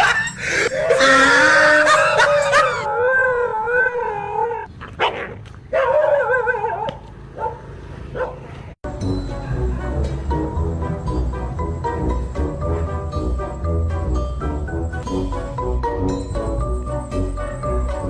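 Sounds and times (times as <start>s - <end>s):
dog howling: 0.7s - 4.7s
music: 8.8s - 18.0s.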